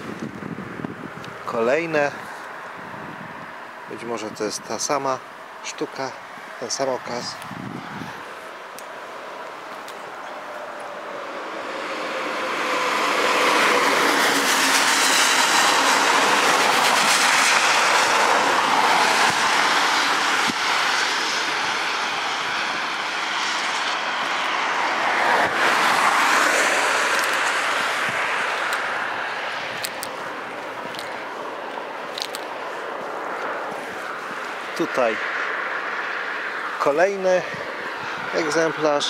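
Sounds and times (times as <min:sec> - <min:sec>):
vehicles passing close by: 0:00.0 - 0:39.0.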